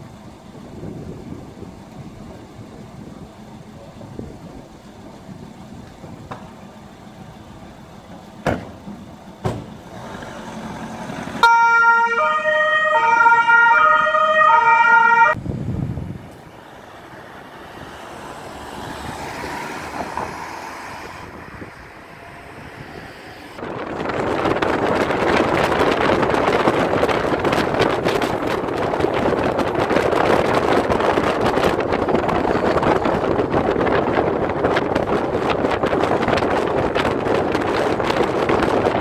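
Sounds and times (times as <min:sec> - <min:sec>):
car engine: 0:00.0 - 0:13.1, 0:14.9 - 0:39.0
street noise: 0:00.0 - 0:39.0
wind: 0:00.0 - 0:39.0
sharp knocks: 0:08.4 - 0:09.8
two-tone police siren: 0:11.4 - 0:15.4.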